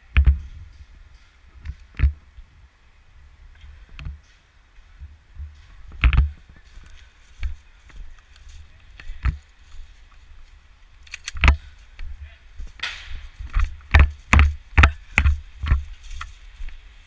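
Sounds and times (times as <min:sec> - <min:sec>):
running footsteps on dry leaves: 0:04.8 - 0:11.0, 0:11.6 - 0:17.0.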